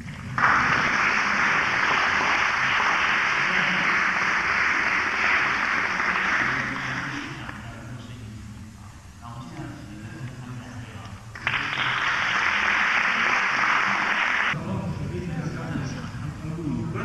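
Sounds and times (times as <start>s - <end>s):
audience applauding: 0.0s - 7.5s, 11.4s - 14.6s.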